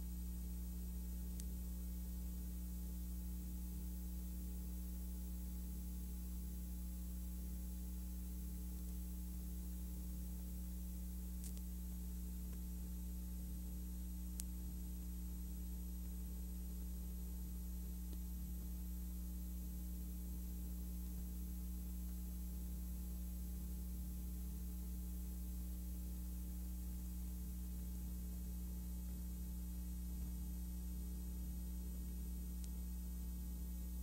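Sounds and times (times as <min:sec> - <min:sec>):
electrical hum: 0:00.0 - 0:34.0
constant hiss: 0:07.1 - 0:23.8
faint clicks: 0:11.4 - 0:11.7, 0:14.4 - 0:14.6, 0:32.6 - 0:32.8.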